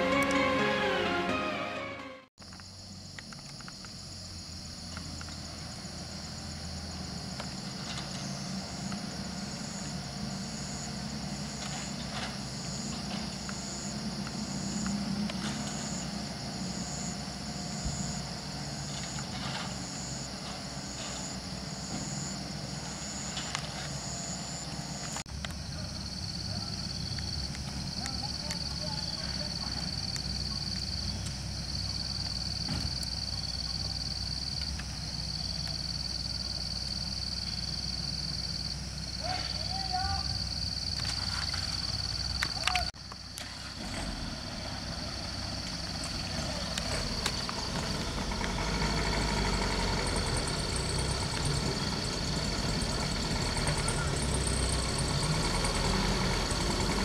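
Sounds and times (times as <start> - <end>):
truck engines labouring: 0.0 - 2.2, 2.9 - 57.0
high buzz of insects: 2.4 - 43.3
pulsing high insect call: 2.4 - 57.0.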